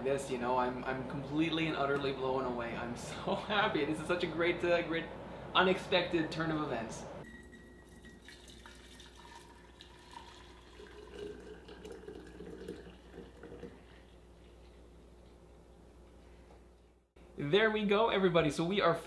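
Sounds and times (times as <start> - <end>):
syrup trickling and dripping: 7.8 - 15.6.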